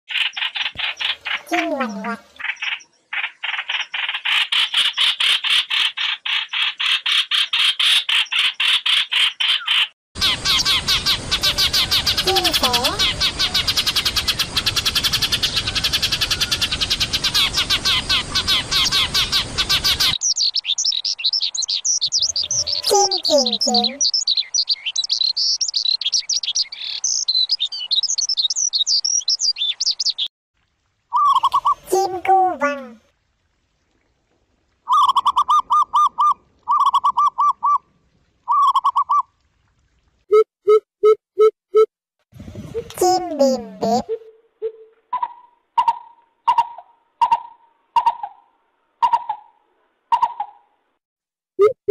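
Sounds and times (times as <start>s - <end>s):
sparrows chirping: 9.4s - 30.3s.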